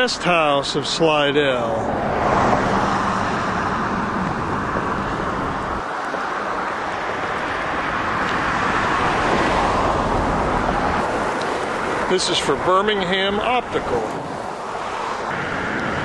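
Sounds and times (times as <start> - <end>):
tyres hissing from passing cars: 0.4 - 16.0.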